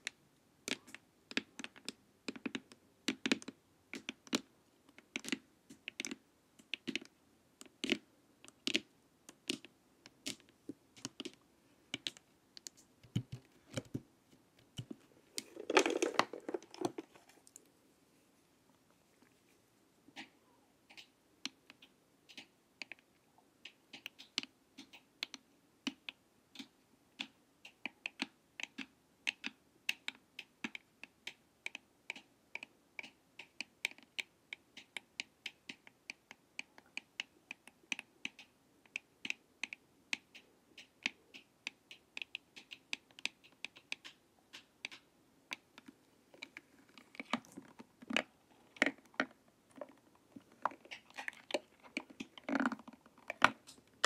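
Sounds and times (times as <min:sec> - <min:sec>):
sticks tapping on plastic mask: 0:00.0 - 0:17.6, 0:23.7 - 0:54.0.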